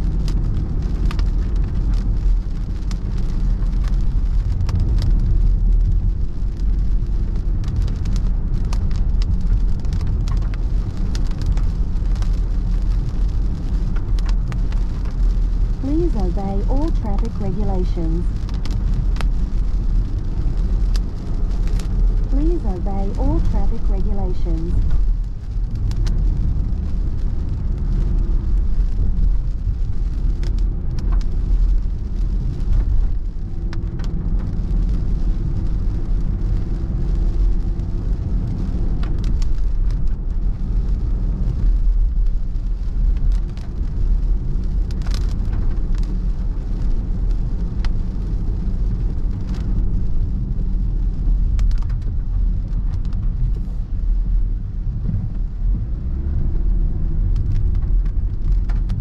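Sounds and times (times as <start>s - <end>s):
road and engine rumble: 0.0s - 59.0s.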